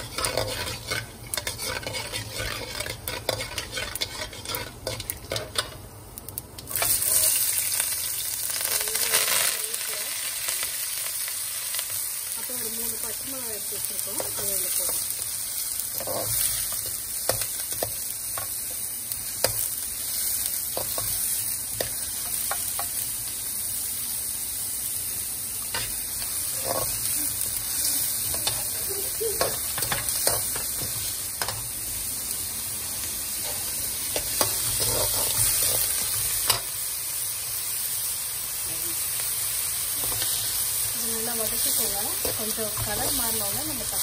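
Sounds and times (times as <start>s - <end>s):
metal spatula scraping a pan: 0.0s - 5.8s, 15.9s - 18.5s, 25.7s - 27.2s, 33.4s - 36.7s
vegetables sizzling in hot oil: 0.0s - 44.0s.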